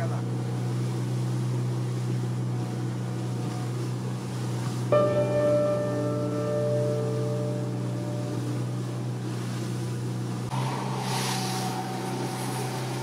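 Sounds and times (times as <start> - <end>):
boat engine running: 0.0 - 13.0
water rushing along hull: 0.0 - 13.0
gong-like chime: 5.0 - 8.8
rush of spray: 10.4 - 13.0.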